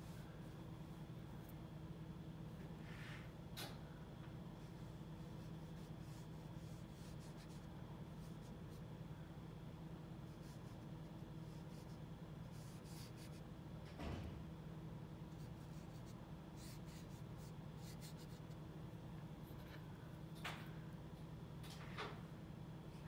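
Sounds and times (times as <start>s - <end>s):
low electrical hum: 0.0s - 23.0s
paintbrush strokes scratching: 4.6s - 8.9s, 10.2s - 13.4s, 15.3s - 18.6s.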